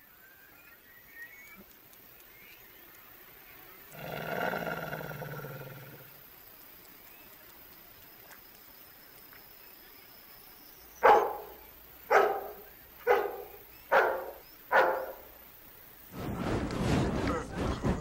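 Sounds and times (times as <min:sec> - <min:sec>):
faint hiss: 0:00.0 - 0:18.0
dog barking: 0:11.0 - 0:15.3.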